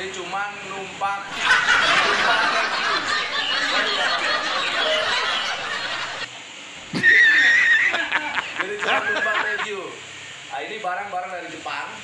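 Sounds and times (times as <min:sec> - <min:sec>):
men talking: 0:00.0 - 0:06.3, 0:08.5 - 0:12.0
men laughing: 0:01.3 - 0:06.3, 0:07.0 - 0:09.9.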